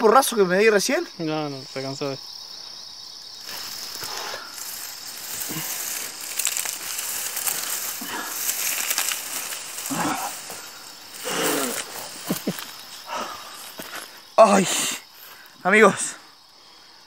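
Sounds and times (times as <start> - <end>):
high cricket trill: 0.0 - 17.0
dry grass rustling and crackling: 3.3 - 14.4.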